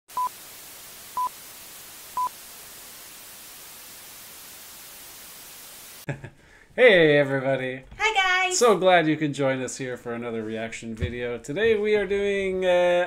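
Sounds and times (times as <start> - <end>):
tv static hiss: 0.1 - 6.1.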